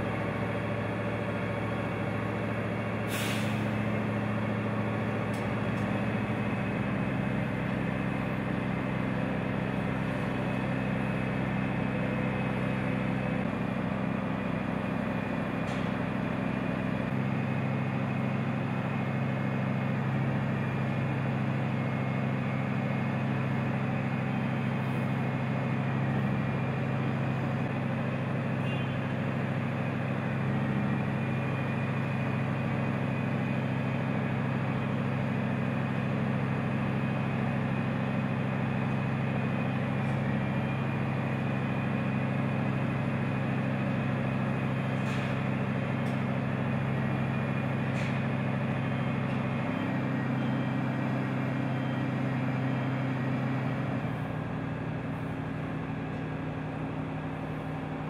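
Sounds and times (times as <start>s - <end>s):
diesel crane engine droning: 0.0s - 58.0s.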